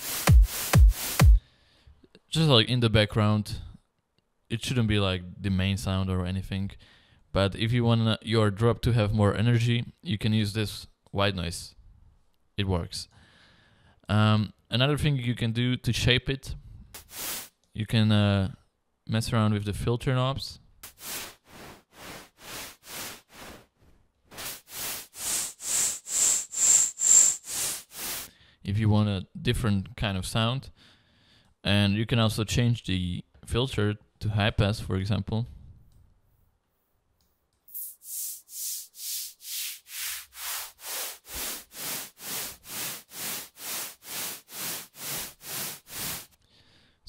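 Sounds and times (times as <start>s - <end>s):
pulsing synth white noise: 24.3s - 28.3s, 40.5s - 46.3s.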